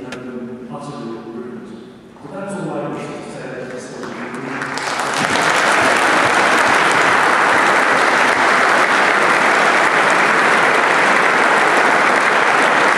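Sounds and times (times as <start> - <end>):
crowd applauding: 3.6 - 12.9.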